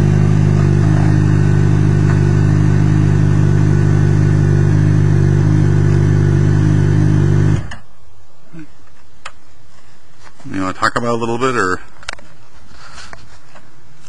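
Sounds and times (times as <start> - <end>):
motorcycle engine idling: 0.0 - 7.6.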